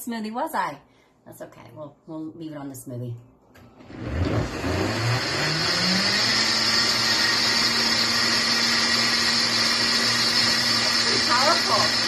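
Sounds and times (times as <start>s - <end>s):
blender motor running: 3.8s - 12.0s.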